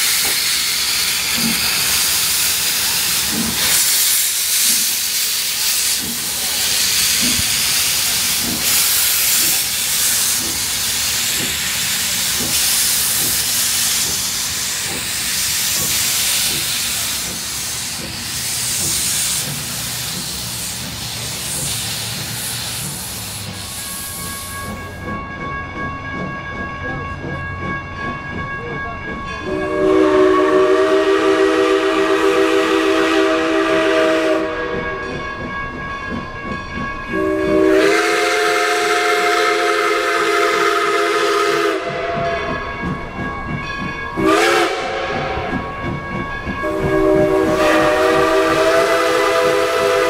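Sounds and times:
hiss of steam: 0.0 - 25.0
steam locomotive exhaust chuffs: 0.0 - 50.0
railroad crossing bell ringing: 6.3 - 50.0.

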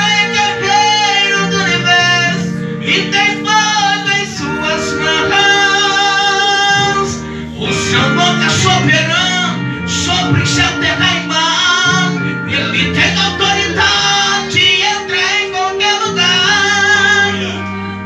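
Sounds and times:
guitar accompaniment: 0.0 - 18.0
person singing gospel song: 0.0 - 18.0.

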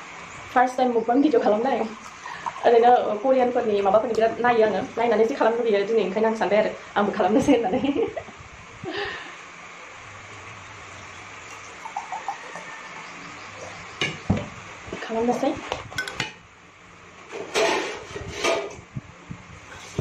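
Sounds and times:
juice pouring into a glass: 10.8 - 13.9
glass and tableware clinking: 13.7 - 14.4, 16.0 - 16.4.

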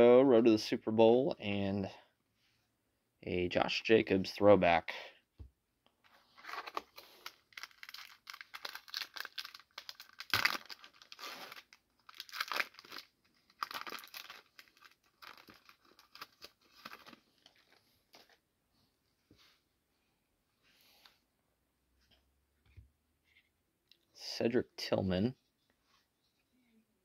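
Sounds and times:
foil wrapper crinkling: 6.4 - 17.8.

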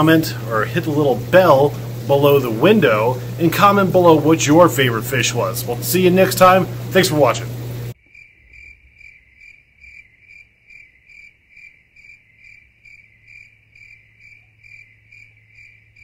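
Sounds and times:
low steady hum: 0.0 - 8.0
cricket chirping: 8.0 - 16.0.

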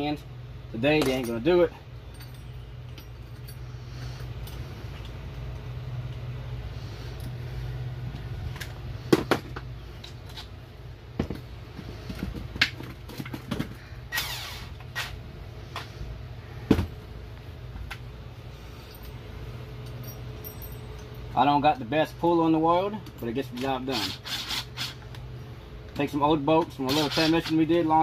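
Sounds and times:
steady low hum: 0.0 - 28.0
metal clinks and knocks: 0.9 - 5.2, 18.8 - 21.4
cordless drill burst: 14.1 - 15.2, 23.9 - 25.0.

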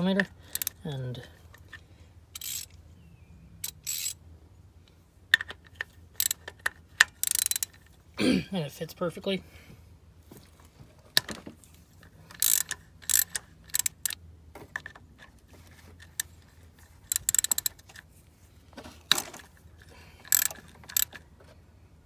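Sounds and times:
hand ratchet clicking: 0.2 - 0.8, 2.3 - 2.7, 3.6 - 4.2, 6.2 - 7.8, 12.3 - 14.2, 17.0 - 18.0, 20.2 - 21.2.

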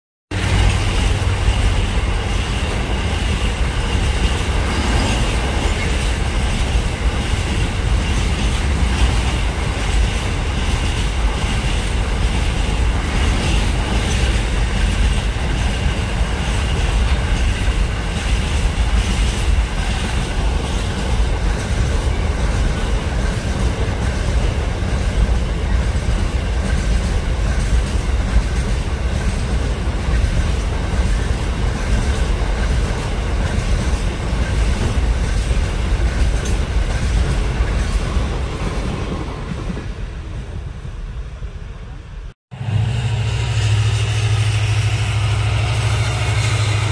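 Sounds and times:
freight train wheels rumbling: 0.3 - 46.9.

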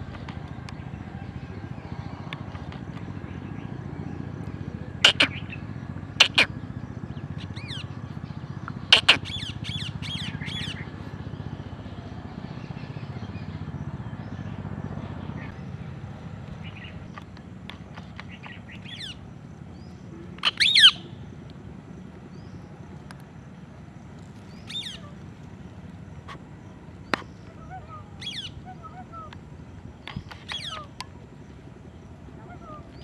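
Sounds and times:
parakeet shrill calls: 7.6 - 7.9, 8.9 - 10.8, 18.4 - 19.2, 20.4 - 21.2, 24.5 - 25.2, 27.1 - 29.3, 30.0 - 31.0.

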